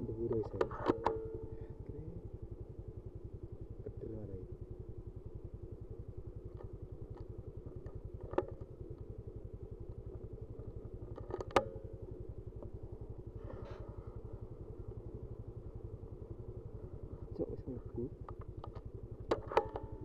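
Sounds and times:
engine running: 0.0 - 20.0
sharp click: 0.3 - 1.2, 18.2 - 19.9.

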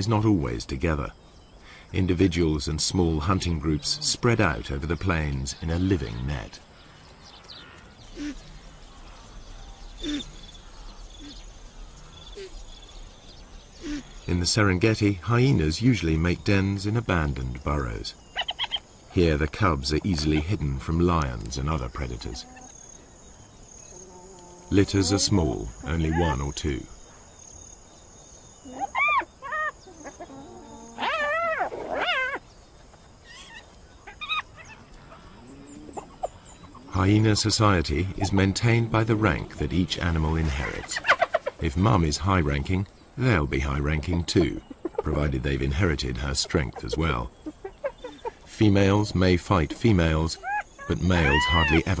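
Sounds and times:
insects chirping: 0.0 - 52.0
animal hooting calls: 8.1 - 8.5, 50.2 - 52.0
hyenas whining calls: 8.1 - 8.6, 9.8 - 11.5, 23.8 - 26.4, 28.6 - 32.5, 33.2 - 37.0, 50.1 - 52.0.

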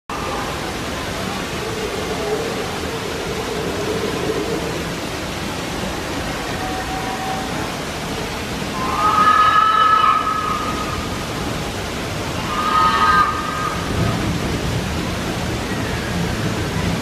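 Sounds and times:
waterfall rushing: 0.1 - 17.0
high-pitched call: 8.7 - 11.2, 12.4 - 13.9.

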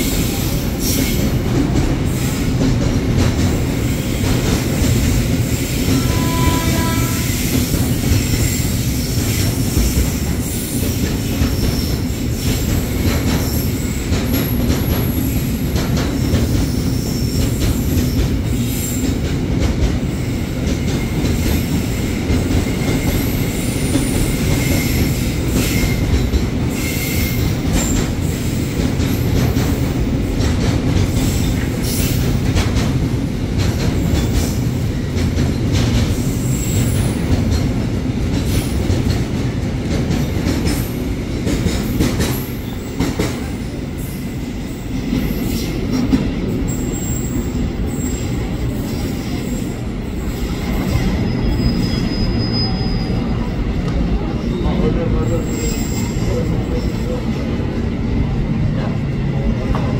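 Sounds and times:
train wheels rumbling on rail: 0.0 - 59.9
high wheel squeals: 50.7 - 53.4.

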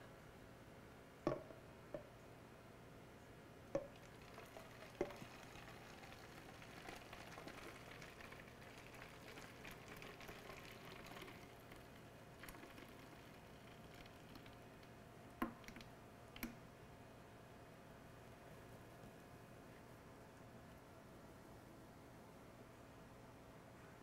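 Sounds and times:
liquid pouring into spray bottle: 3.8 - 14.6.

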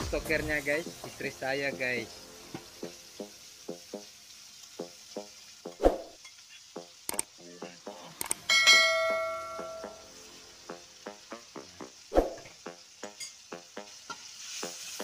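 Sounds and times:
paste sizzling in a wok: 0.0 - 15.0
clicks: 7.1 - 7.3
ringing bell chime: 8.5 - 10.0.

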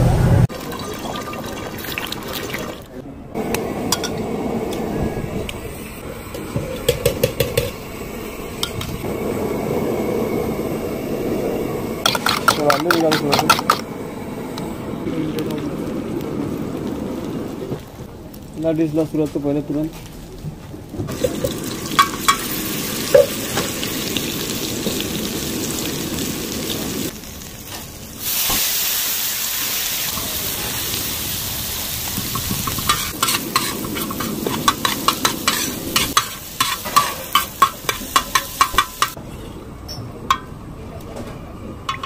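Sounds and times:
vegetables sizzling on a griddle: 21.0 - 39.2
metal spatula scraping griddle: 32.6 - 37.6.

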